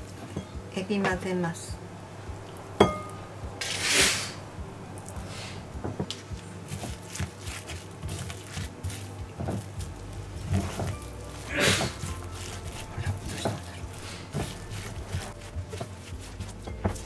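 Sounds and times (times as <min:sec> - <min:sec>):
short hiss: 0:03.6 - 0:04.4.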